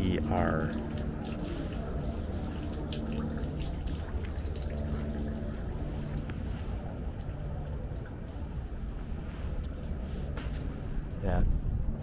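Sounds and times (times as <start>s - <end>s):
water dripping and trickling: 0.0s - 9.0s
steady low hum: 0.0s - 12.0s.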